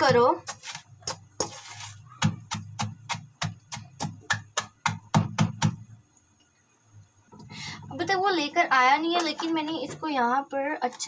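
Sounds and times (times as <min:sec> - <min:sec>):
cookies pounded in steel pot: 0:00.0 - 0:06.0.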